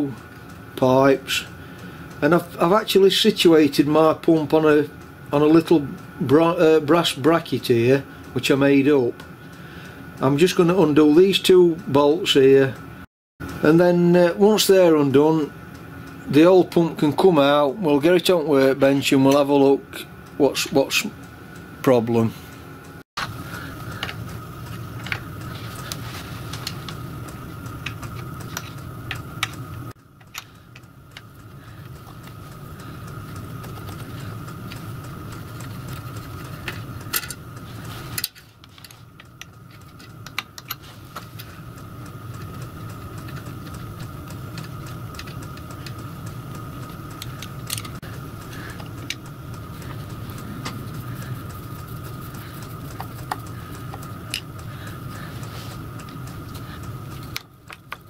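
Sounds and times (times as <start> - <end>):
steady low hum: 0.0 - 58.0
metallic clicks and taps of tools: 38.2 - 40.8, 47.2 - 48.1.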